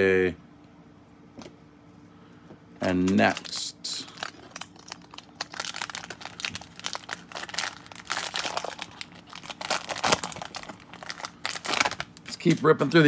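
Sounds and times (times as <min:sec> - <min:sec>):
plastic wrapper crinkling and tearing: 0:03.0 - 0:13.0.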